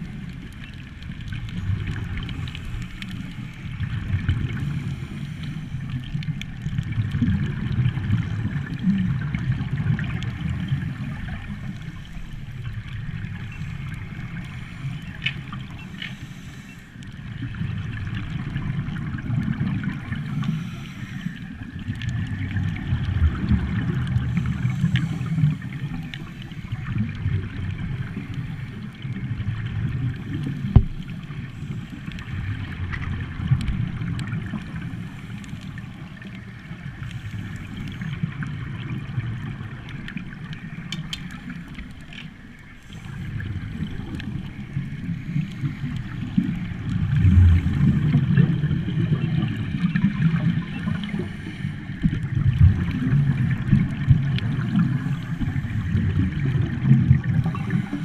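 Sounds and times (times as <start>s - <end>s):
muffled underwater water rumble: 0.0s - 58.0s
scuba bubbles gurgling: 0.0s - 58.0s
small clicks: 40.0s - 42.3s.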